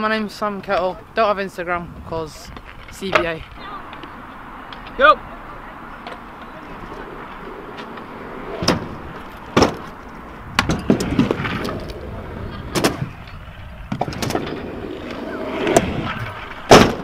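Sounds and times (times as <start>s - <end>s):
scooter wheels rolling on tarmac: 0.2s - 17.0s.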